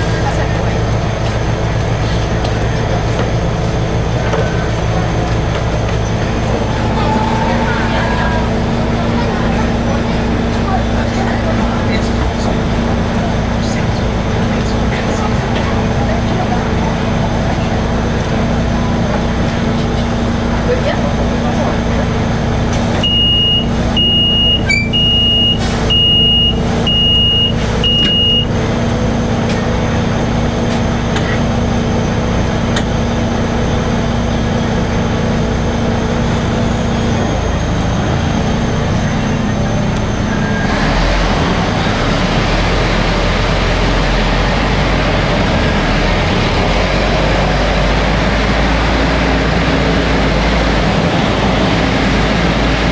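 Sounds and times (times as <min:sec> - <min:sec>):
vehicle humming: 0:00.0 - 0:52.9
vehicle rumbling and rolling: 0:00.0 - 0:52.9
warning beeper: 0:06.4 - 0:09.2, 0:23.0 - 0:28.6.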